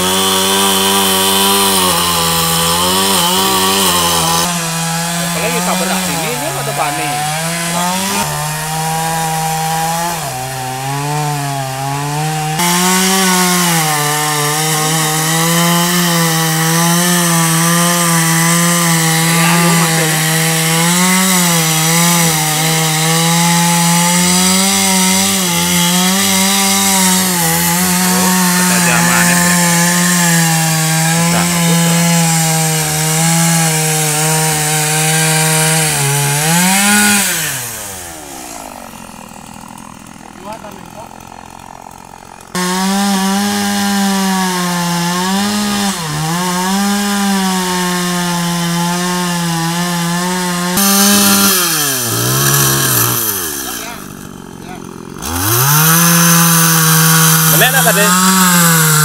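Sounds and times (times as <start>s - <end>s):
chainsaw cutting wood: 0.0s - 59.0s.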